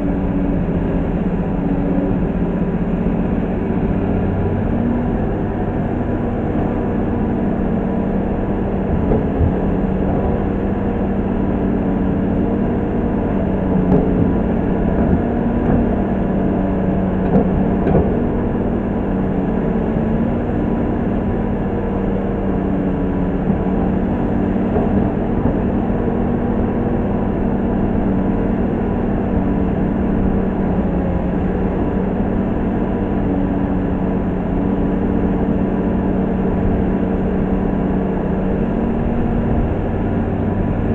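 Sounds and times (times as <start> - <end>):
excavator diesel engine running: 0.0 - 40.9
short knocks and clunks: 8.8 - 10.6.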